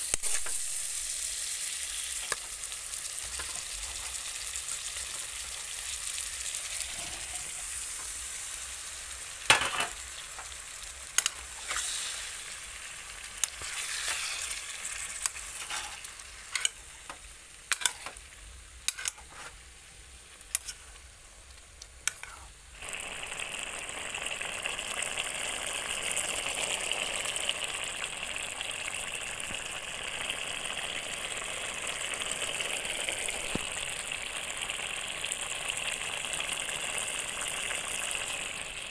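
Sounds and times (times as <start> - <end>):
vegetables sizzling in oil: 0.0 - 38.9
metal spatula scraping pan: 6.8 - 7.8, 11.2 - 12.4, 13.4 - 14.6, 15.3 - 16.8, 17.7 - 18.2, 18.9 - 19.6, 20.5 - 20.9, 22.1 - 22.5.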